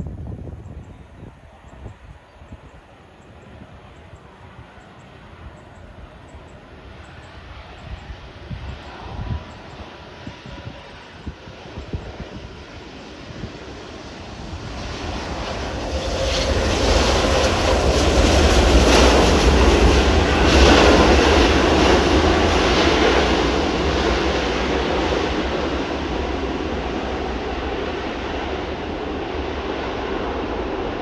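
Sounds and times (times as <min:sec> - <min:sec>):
jet engines roaring: 0:03.3 - 0:31.0.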